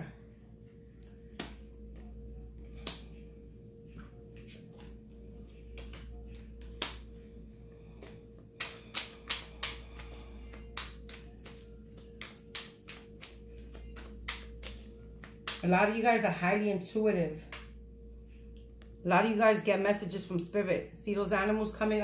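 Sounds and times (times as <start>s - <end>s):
faint steady hum: 0.0s - 22.0s
cards clicking and tapping on a table: 1.3s - 2.1s, 8.0s - 15.6s.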